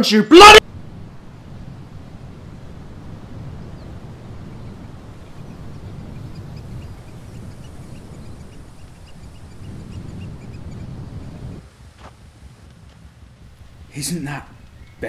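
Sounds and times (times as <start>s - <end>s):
wind buffeting microphone: 0.6s - 15.0s
small birds chirping: 2.7s - 12.2s, 13.5s - 15.0s.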